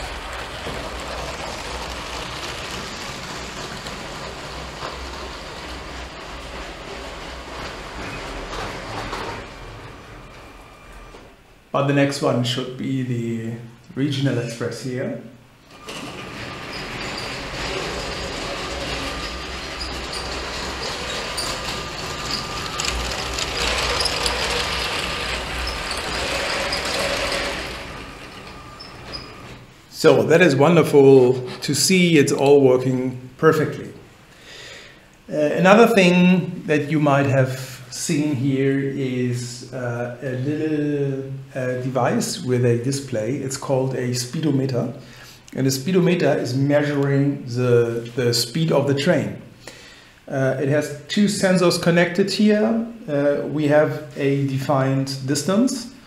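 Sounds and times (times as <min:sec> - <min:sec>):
toy train motor hum: 0:00.0 - 0:08.7, 0:16.8 - 0:29.3
plastic wheels rattling on rails: 0:00.0 - 0:11.1, 0:15.7 - 0:29.7.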